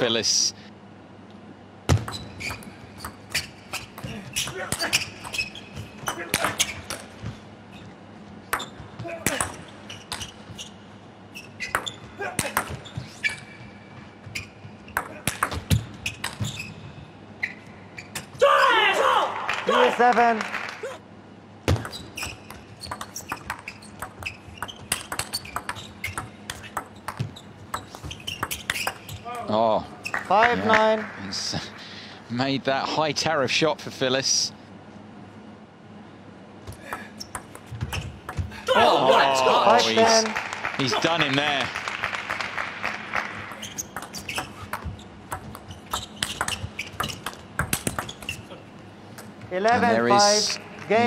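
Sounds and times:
ping pong ball clicking off rackets: 0:21.8 - 0:29.0.

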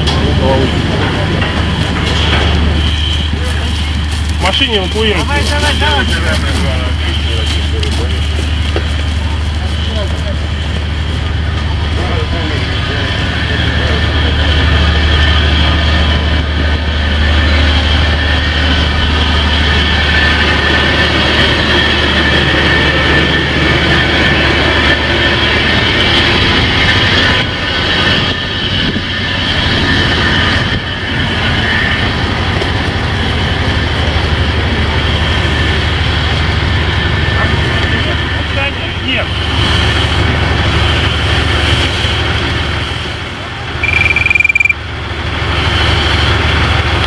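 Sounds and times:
high-pitched machinery whine: 0:43.8 - 0:45.0.

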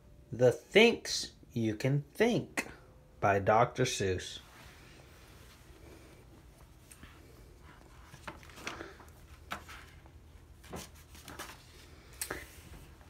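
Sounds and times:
book pages turning: 0:06.7 - 0:13.0.

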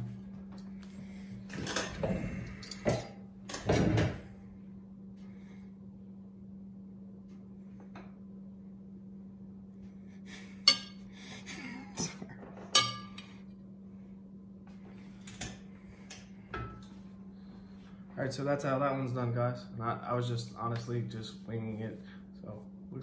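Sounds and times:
low hum: 0:00.0 - 0:23.0
cutlery clinking on ceramic bowls: 0:10.7 - 0:11.0, 0:12.7 - 0:13.3.

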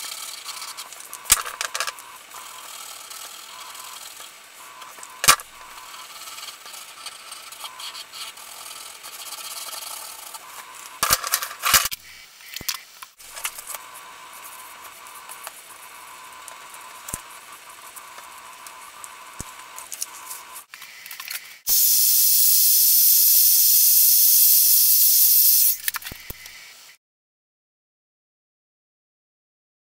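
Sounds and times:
electric blower hissing: 0:21.7 - 0:26.6.

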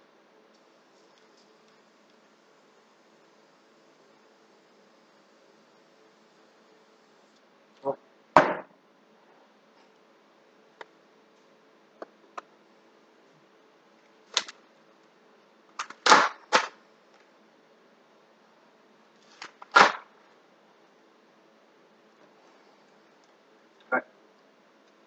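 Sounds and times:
spray paint hissing: 0:00.6 - 0:07.4.

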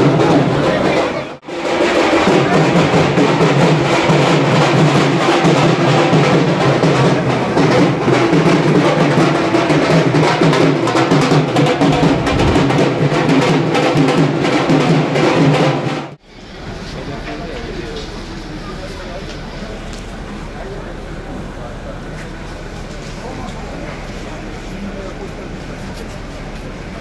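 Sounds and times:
drum-driven music: 0:00.0 - 0:16.1.

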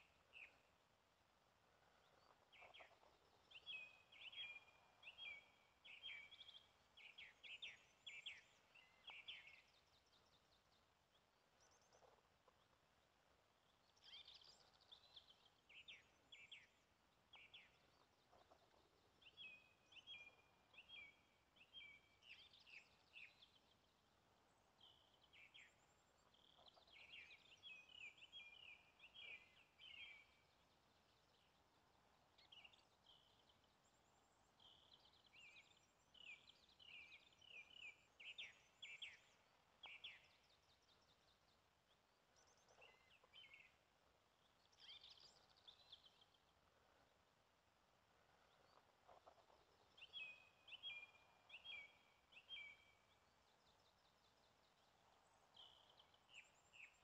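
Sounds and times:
faint background hiss: 0:00.0 - 0:57.0
songbirds chirping and trilling: 0:00.0 - 0:57.0.

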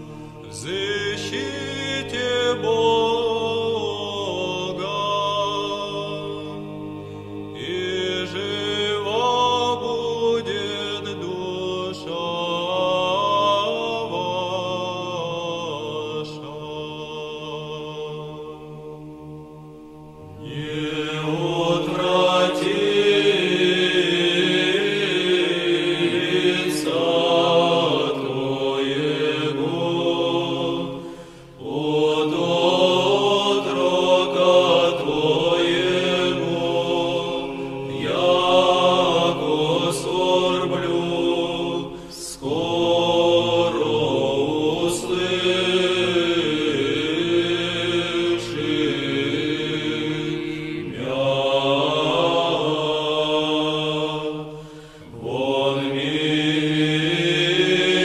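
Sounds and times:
voices chanting: 0:20.2 - 0:58.0.

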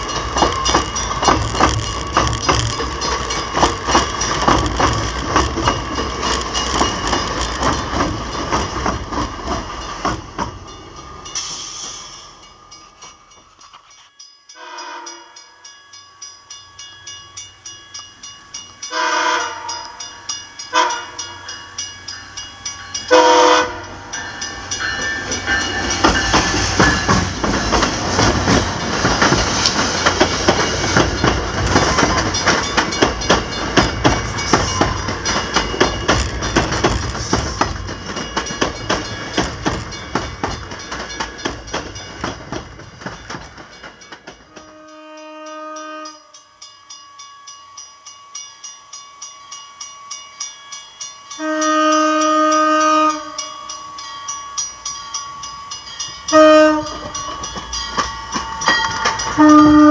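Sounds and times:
coaches clattering over rail joints: 0:00.0 - 0:14.1, 0:23.8 - 0:44.8, 0:55.1 - 0:59.9
train horn blasts: 0:14.6 - 0:15.5, 0:18.9 - 0:20.0, 0:20.7 - 0:21.5, 0:23.1 - 0:24.0, 0:44.6 - 0:46.4, 0:51.3 - 0:53.6, 0:56.3 - 0:57.2, 0:59.3 - 0:59.9.

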